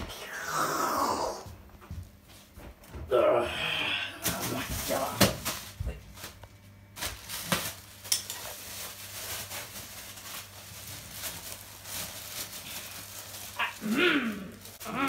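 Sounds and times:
plastic bag crinkling: 4.2s - 15.0s.

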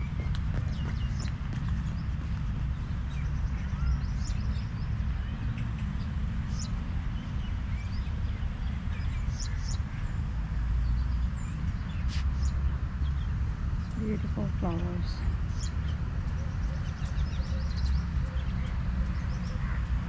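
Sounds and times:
birds chirping: 0.0s - 20.0s
steady low rumble: 0.0s - 20.0s.

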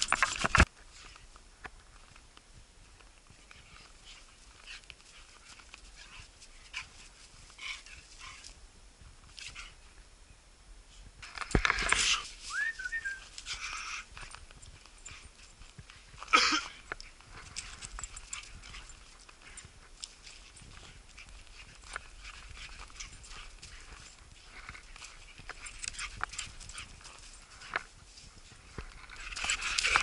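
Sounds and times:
dog paws crunching on snow: 0.0s - 10.0s, 10.9s - 30.0s.

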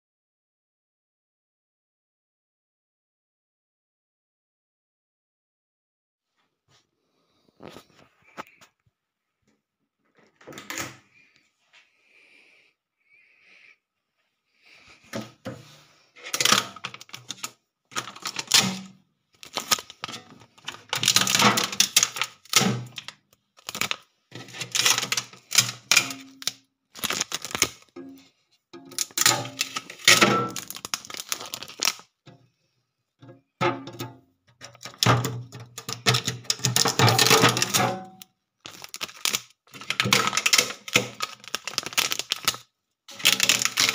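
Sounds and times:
fridge door opening: 10.2s - 11.0s
plastic parts clicking and rattling: 16.2s - 28.2s, 28.8s - 32.4s, 33.2s - 43.9s
tape peeling off crackling: 29.5s - 32.0s, 38.7s - 43.9s.

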